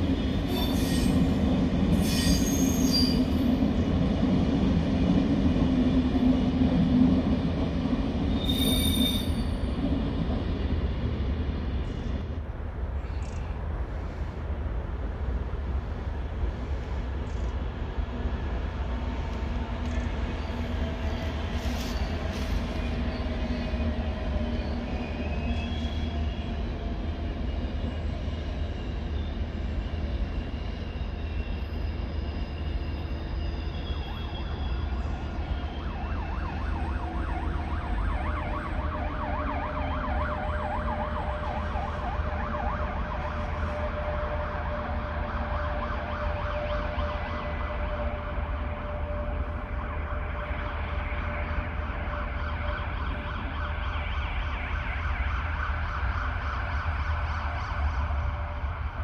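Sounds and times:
electric train rumbling past: 0:00.0 - 0:59.0
emergency vehicle siren: 0:18.6 - 0:59.0.

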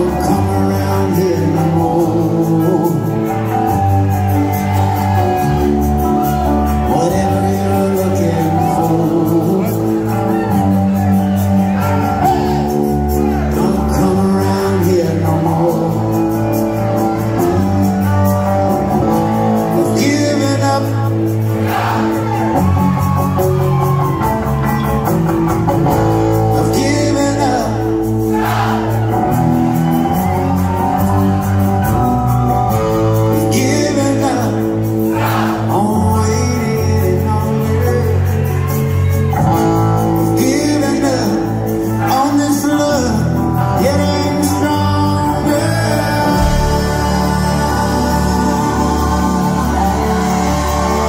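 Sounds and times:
person singing: 0:00.0 - 0:25.1, 0:25.7 - 0:29.3, 0:30.1 - 0:51.0
live rock band playing: 0:00.0 - 0:51.0.

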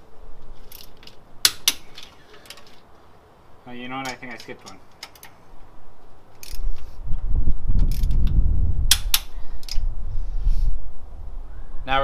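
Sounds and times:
low rumble: 0:05.6 - 0:11.9.

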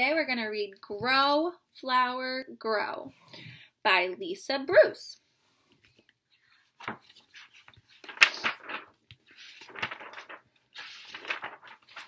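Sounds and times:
book pages rustling and flapping: 0:05.7 - 0:12.0.

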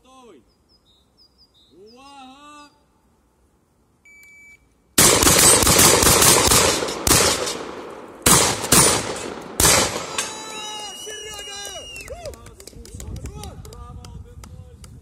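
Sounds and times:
electronic beep: 0:04.0 - 0:04.7
shotgun blasts: 0:05.0 - 0:10.5.

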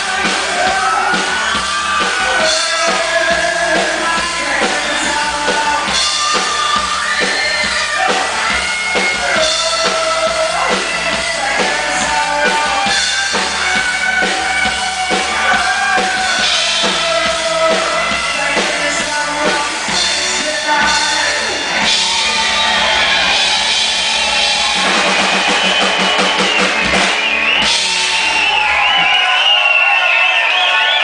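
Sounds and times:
live rock band: 0:00.0 - 0:31.0
fast run of drum hits: 0:21.9 - 0:29.3.

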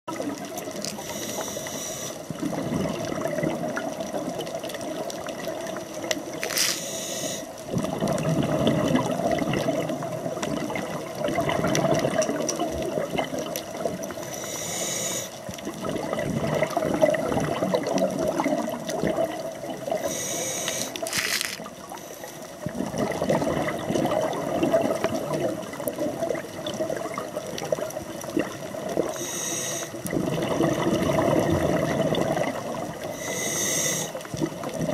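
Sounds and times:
regulator inhalation hiss: 0:00.9 - 0:02.2, 0:06.6 - 0:07.5, 0:14.2 - 0:15.4, 0:20.0 - 0:21.1, 0:29.1 - 0:30.0, 0:33.1 - 0:34.2
bubbling exhalation: 0:02.3 - 0:06.8, 0:07.6 - 0:14.2, 0:15.6 - 0:20.2, 0:22.6 - 0:29.2, 0:29.9 - 0:33.2.

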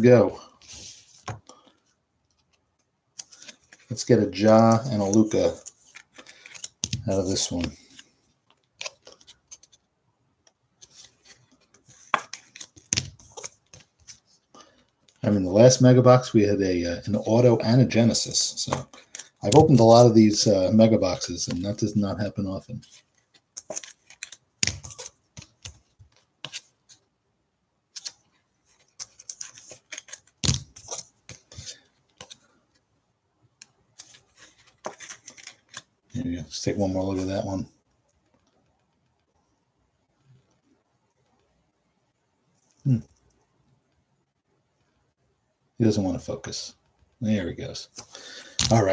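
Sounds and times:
cards being handled: 0:00.6 - 0:09.8, 0:10.8 - 0:15.2, 0:18.1 - 0:27.0, 0:27.9 - 0:32.6, 0:33.6 - 0:36.0, 0:47.8 - 0:48.9.

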